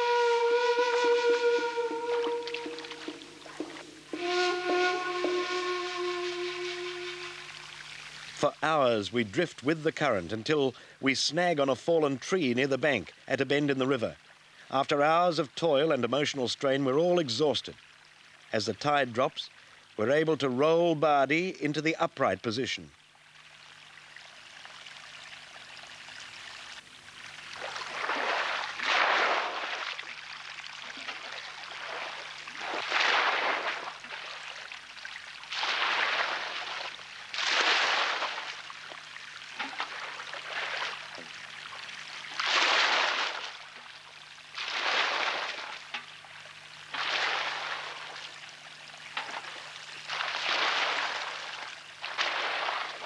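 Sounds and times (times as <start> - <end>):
water trickling: 0.0 - 11.0, 11.8 - 20.3, 22.8 - 53.0
water pouring and splashing: 1.5 - 9.6, 23.0 - 53.0.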